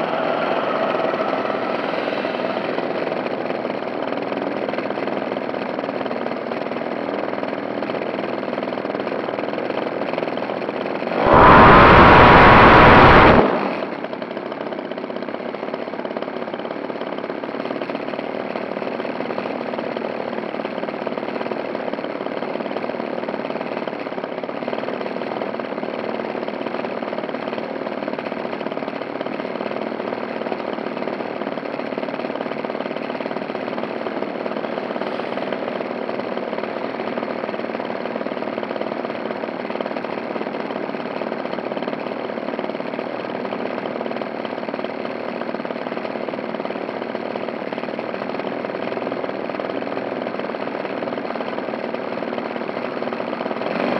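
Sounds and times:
model plane motor running: 0.0s - 7.3s.

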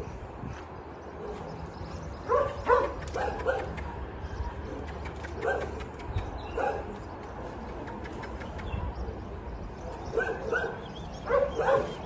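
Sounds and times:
dog barking: 2.3s - 4.7s, 5.4s - 7.0s, 9.9s - 12.0s.

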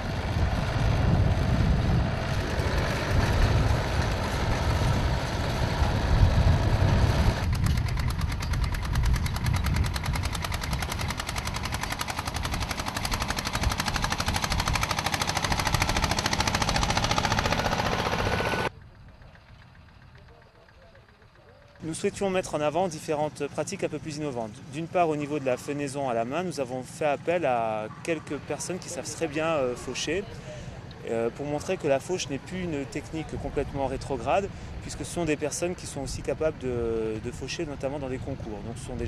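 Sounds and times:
tractor engine exhaust beat: 0.0s - 24.3s
tractor working a hay rake: 0.0s - 26.2s.

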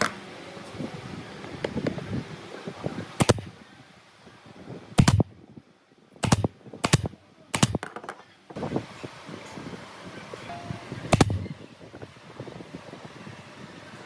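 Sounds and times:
nail gun firing into wood: 3.2s - 3.5s, 5.0s - 5.3s, 6.2s - 8.0s, 11.1s - 11.4s.

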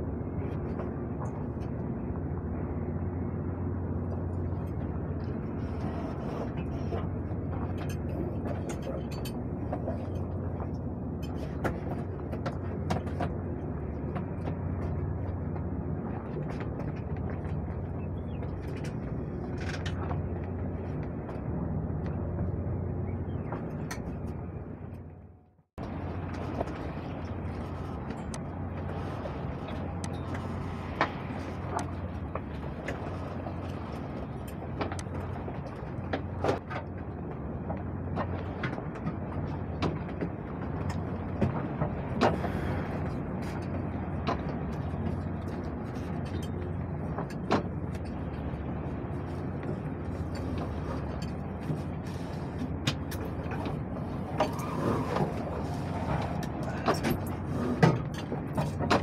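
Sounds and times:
wind and water rumble: 0.0s - 59.0s
rigging clicks and knocks: 56.3s - 59.0s.

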